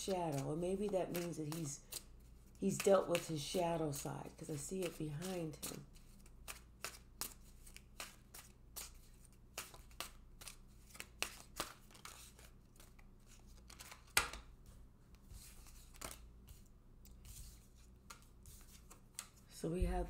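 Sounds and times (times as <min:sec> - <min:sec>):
cards being shuffled: 0:00.0 - 0:19.5.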